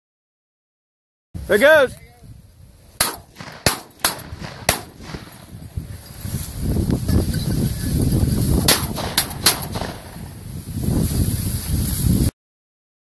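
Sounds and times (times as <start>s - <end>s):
wind buffeting microphone: 1.4s - 12.3s
sharp cracks: 3.0s - 5.8s, 8.5s - 10.6s
walking through dry crop: 5.2s - 8.6s, 10.0s - 12.3s.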